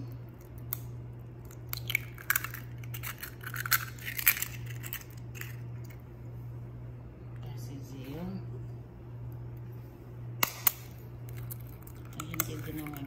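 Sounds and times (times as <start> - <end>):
eggshell crackling: 0.0 - 6.1, 10.8 - 13.0.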